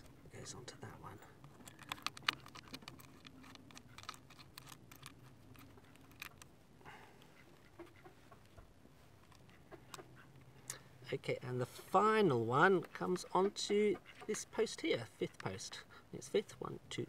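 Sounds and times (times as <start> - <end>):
small metallic clicks: 1.3 - 6.5.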